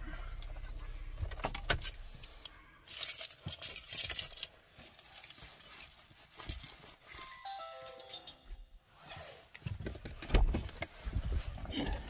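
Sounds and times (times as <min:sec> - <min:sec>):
car engine idling: 0:00.0 - 0:02.5
car keys jangling: 0:01.3 - 0:08.6.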